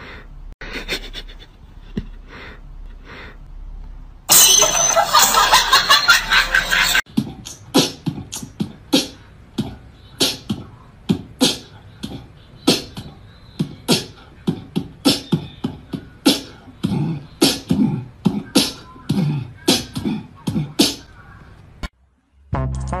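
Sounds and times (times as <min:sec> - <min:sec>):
beatboxing beat: 0:07.1 - 0:21.1.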